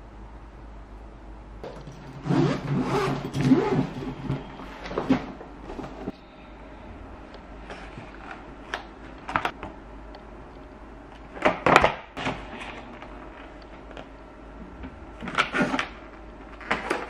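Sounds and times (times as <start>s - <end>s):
low hum: 0.0s - 11.3s
plastic packs clicking and crinkling: 15.2s - 17.0s.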